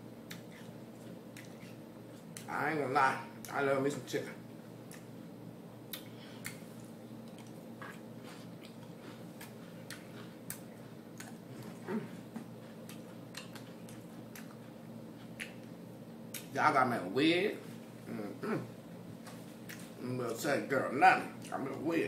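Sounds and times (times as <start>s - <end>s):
low background hum: 0.0s - 22.0s
chewing: 0.3s - 2.5s, 5.9s - 16.5s, 19.2s - 20.0s.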